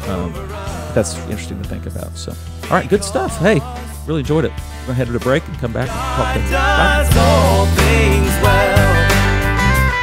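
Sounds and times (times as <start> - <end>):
steady bass: 0.0 - 10.0
country music with guitar: 5.8 - 10.0.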